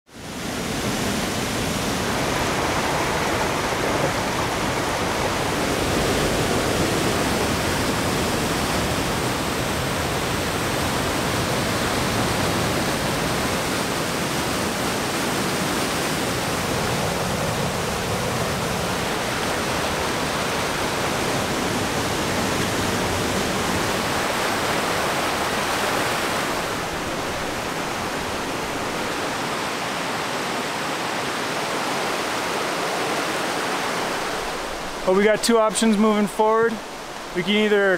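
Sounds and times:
rushing water: 0.1 - 37.9.

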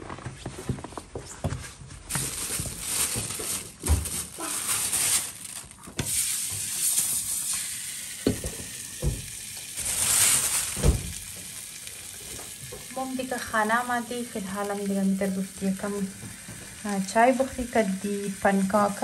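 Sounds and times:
pancake sizzling in a pan: 5.1 - 19.0.

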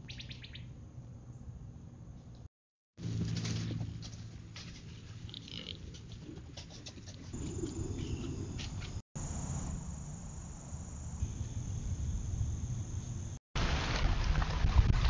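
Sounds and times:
insects trilling: 7.4 - 13.4.

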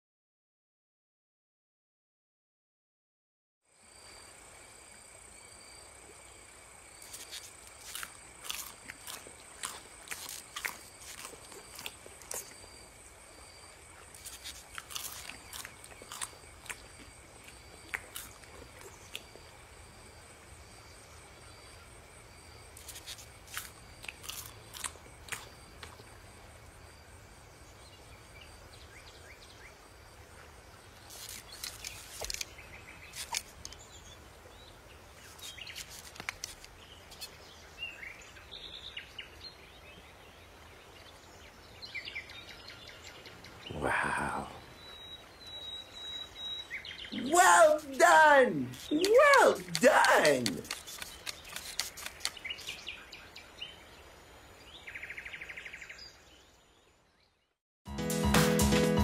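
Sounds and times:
crisp crunches and clicks: 7.0 - 12.6, 14.1 - 16.8, 22.8 - 26.0, 31.1 - 33.8, 35.3 - 37.3, 47.4 - 52.8.

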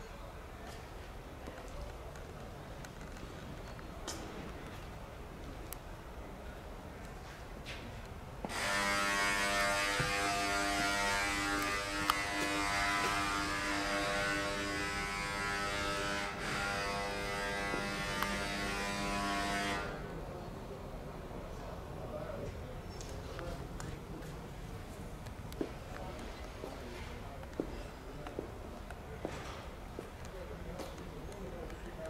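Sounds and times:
small motor buzzing: 8.5 - 19.9.

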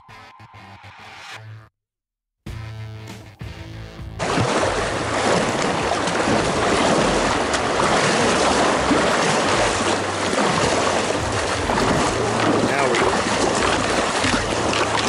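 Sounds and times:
paddle stroke splashes: 4.2 - 15.0
river water rushing: 4.2 - 15.0.

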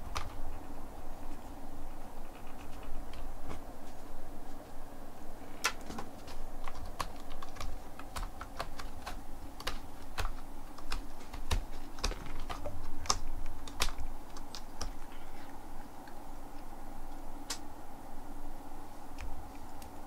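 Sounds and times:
cat scratching cardboard: 6.0 - 15.5.

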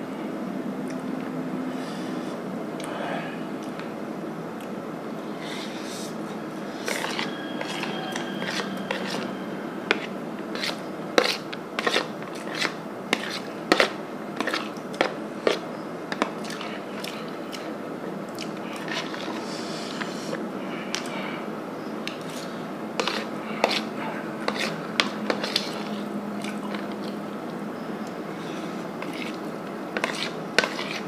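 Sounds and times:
metal spoon scraping plastic plate: 6.7 - 17.2, 18.7 - 21.1, 22.1 - 26.1, 28.5 - 31.0
chewing: 22.1 - 31.0.

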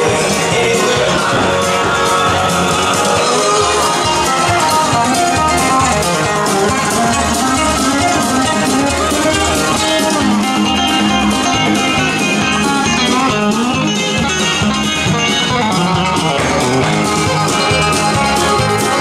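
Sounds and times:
country dance music: 0.0 - 19.0.

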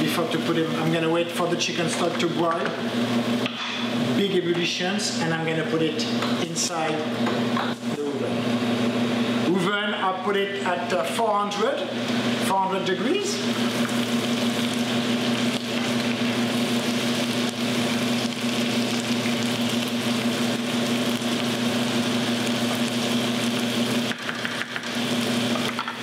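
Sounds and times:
stock bubbling and sizzling: 13.2 - 26.0.

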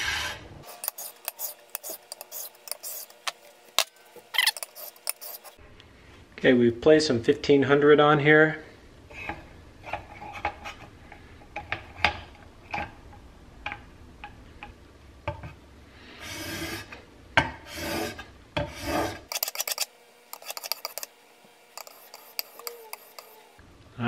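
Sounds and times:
metal blade scraping on sandpaper: 0.0 - 5.6, 17.7 - 21.1, 21.7 - 23.5
long rasping strokes: 21.8 - 23.6.

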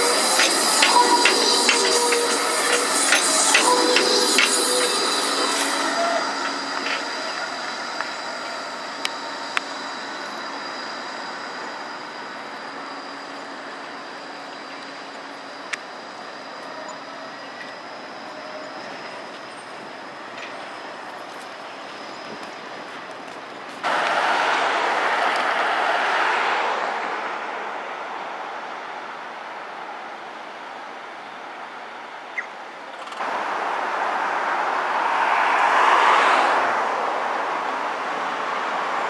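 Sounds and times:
high wheel squeal: 0.0 - 27.1
tram rolling on rails: 0.0 - 39.0.

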